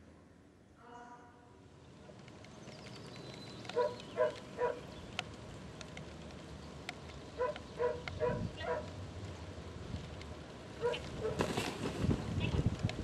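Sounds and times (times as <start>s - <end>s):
dog barking: 3.8s - 4.8s, 7.4s - 8.9s, 10.8s - 11.4s.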